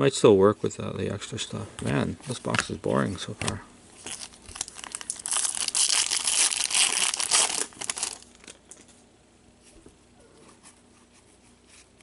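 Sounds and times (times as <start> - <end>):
wrapper tearing and crinkling: 4.0 - 8.8.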